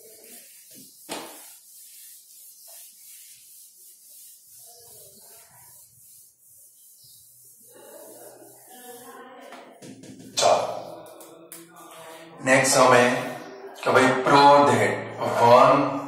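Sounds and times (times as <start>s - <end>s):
eraser wiping whiteboard: 0.0s - 11.0s.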